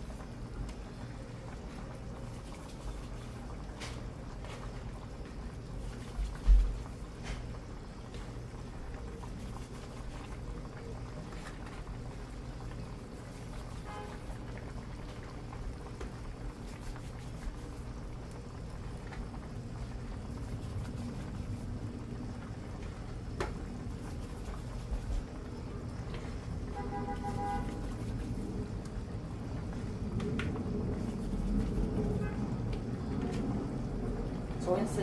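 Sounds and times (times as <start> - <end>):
stew bubbling in a pot: 0.0 - 35.0.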